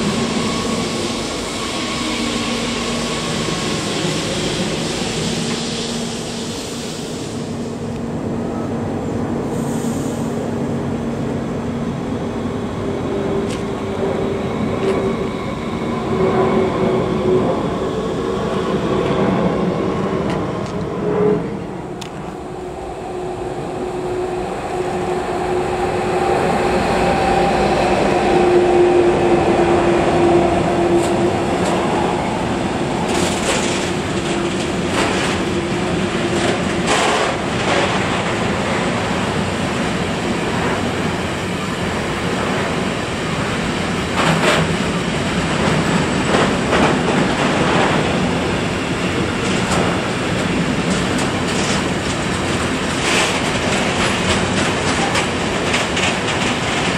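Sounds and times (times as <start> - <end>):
electric train pulling away: 0.0 - 8.8
freight train rolling past: 0.0 - 56.9.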